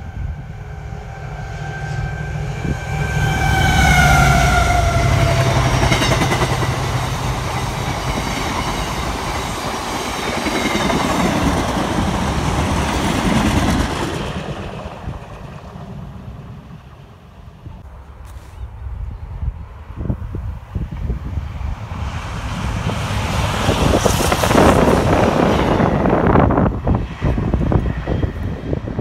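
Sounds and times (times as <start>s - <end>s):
train horn: 0.0s - 5.9s
train wheels on rails: 0.0s - 19.0s, 20.1s - 29.0s.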